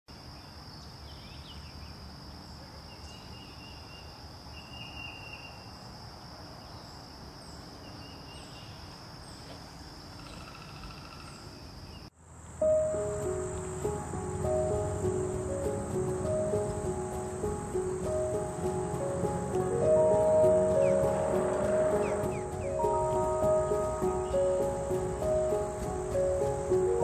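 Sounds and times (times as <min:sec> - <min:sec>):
high insect trill: 0:00.1 - 0:27.0
music: 0:12.6 - 0:27.0.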